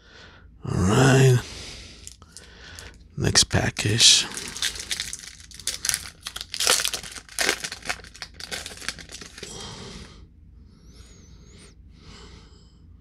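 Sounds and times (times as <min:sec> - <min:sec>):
wrapper tearing and crinkling: 0:04.2 - 0:09.5.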